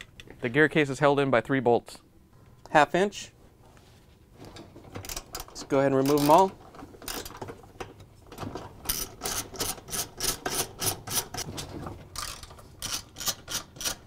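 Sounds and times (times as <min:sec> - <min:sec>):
socket ratchet clicking: 0:12.8 - 0:14.0.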